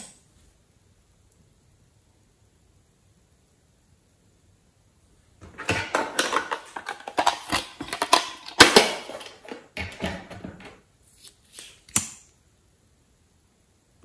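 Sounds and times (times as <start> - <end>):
plastic clicking and scraping: 5.4 - 10.8.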